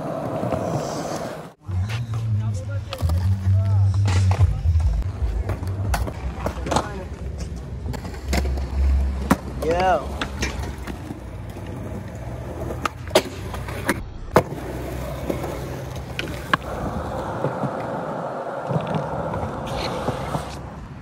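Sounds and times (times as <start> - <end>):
skateboard wheels rolling on concrete: 0.0 - 21.0.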